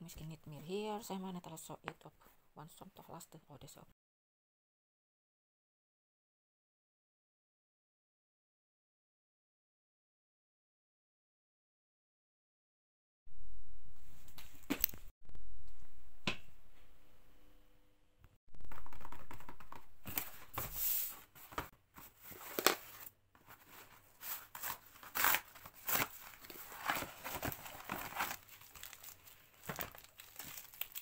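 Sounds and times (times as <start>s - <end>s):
packaging tearing and crinkling: 24.6s - 31.0s.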